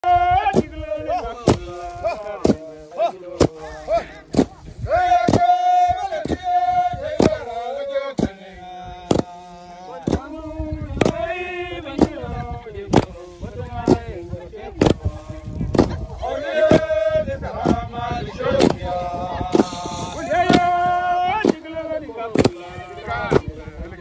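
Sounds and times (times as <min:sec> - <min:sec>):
men chanting: 0:00.0 - 0:24.0
wooden beaters thudding: 0:01.4 - 0:02.7, 0:03.3 - 0:08.4, 0:09.0 - 0:10.4, 0:18.6 - 0:22.7.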